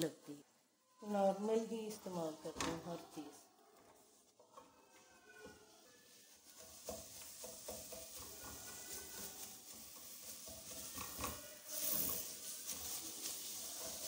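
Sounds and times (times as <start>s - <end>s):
onions sizzling in a pot: 1.0s - 14.0s
spatula scraping a pot: 5.0s - 14.0s.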